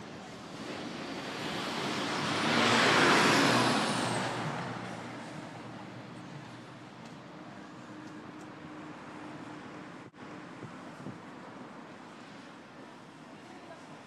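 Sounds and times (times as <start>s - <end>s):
vehicle driving past: 1.2s - 6.7s.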